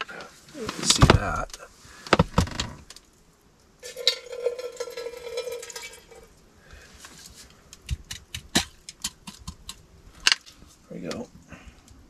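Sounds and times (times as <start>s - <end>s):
water pouring into metal pot: 3.8s - 6.3s.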